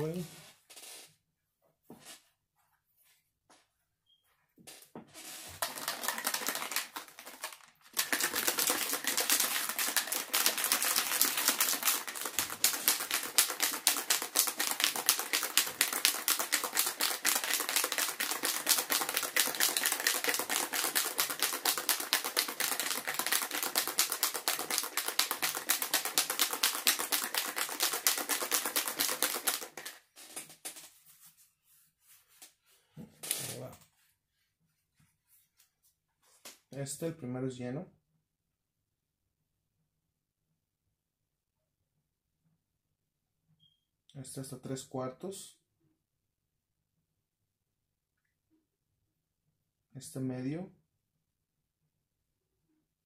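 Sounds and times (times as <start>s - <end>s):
plastic bottle shaken rattling: 5.4s - 31.2s.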